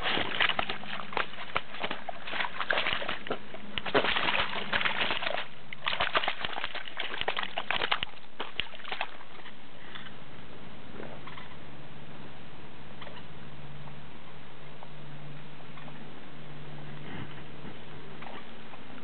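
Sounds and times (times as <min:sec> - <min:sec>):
water splashing: 0:00.0 - 0:09.5
fish thrashing in water: 0:00.0 - 0:09.6.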